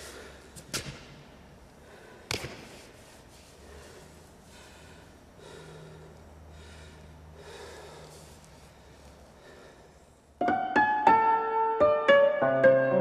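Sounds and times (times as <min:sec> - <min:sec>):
man breathing heavily: 0:00.0 - 0:00.7, 0:01.5 - 0:10.4.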